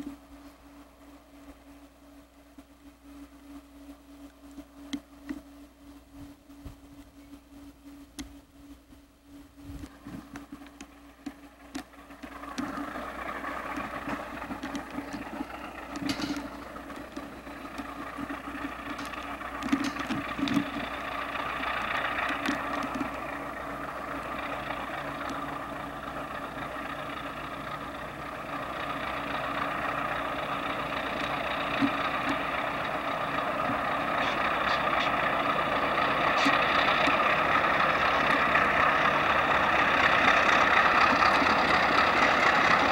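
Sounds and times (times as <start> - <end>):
diesel locomotive engines: 0.0 - 42.9
faint clicks: 9.8 - 21.1, 22.2 - 23.3, 25.1 - 25.5.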